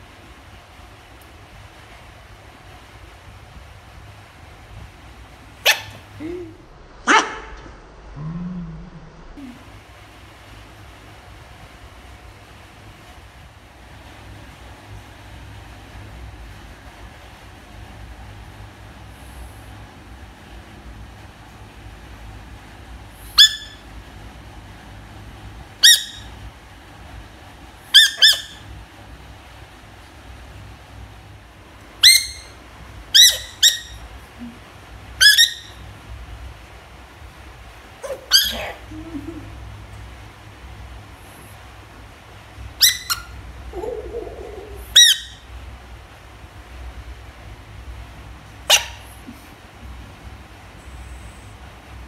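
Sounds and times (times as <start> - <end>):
squeaky rubber toy squeaking: 28.0 - 28.6, 32.0 - 32.5, 33.2 - 34.0, 35.2 - 35.7, 38.1 - 38.8, 42.8 - 43.3.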